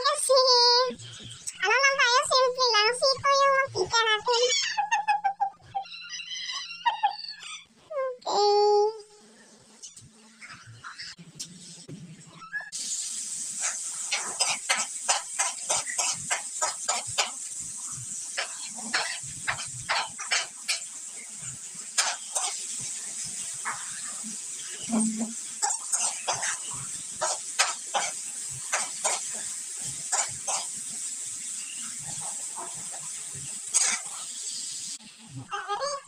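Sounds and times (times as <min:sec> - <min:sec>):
onion and garlic sizzling in oil: 0:12.5 - 0:35.2.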